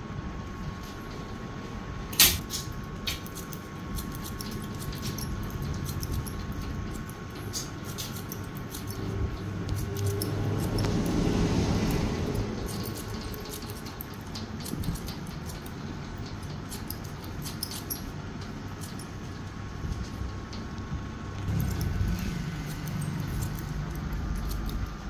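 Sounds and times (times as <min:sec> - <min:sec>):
scissors snipping hair: 0:02.2 - 0:18.1, 0:21.4 - 0:25.0
low hum: 0:03.7 - 0:25.0.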